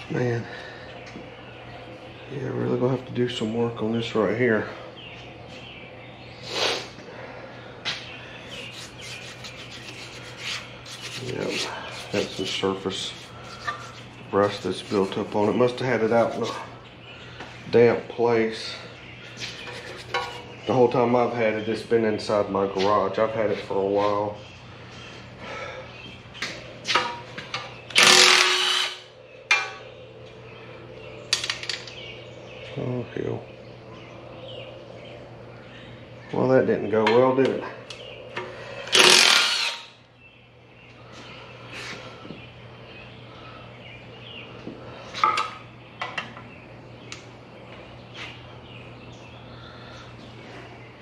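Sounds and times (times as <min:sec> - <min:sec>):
steady low hum: 0:00.0 - 0:51.0
cordless power tool running: 0:28.0 - 0:29.0, 0:38.9 - 0:39.9.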